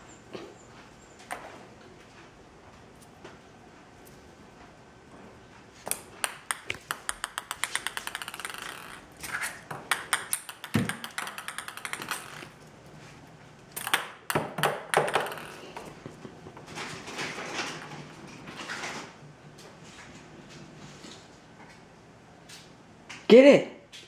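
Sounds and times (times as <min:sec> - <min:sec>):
ping pong ball bouncing on tile: 0:05.9 - 0:12.6, 0:13.8 - 0:16.2.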